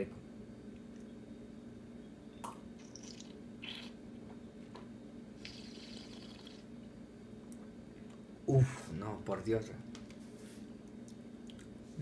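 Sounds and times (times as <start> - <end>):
low room hum: 0.0 - 12.0
sipping and mouth sounds: 2.8 - 4.0, 5.4 - 6.7.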